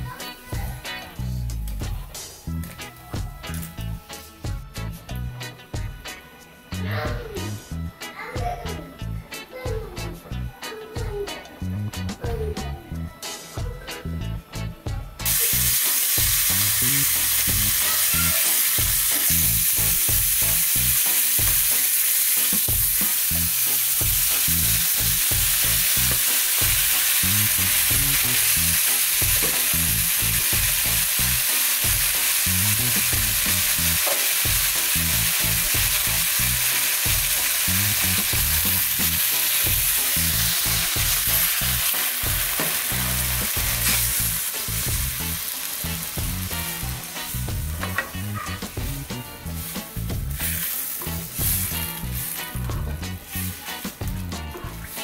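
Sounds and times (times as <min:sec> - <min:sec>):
food frying in oil: 0:15.2 - 0:55.0.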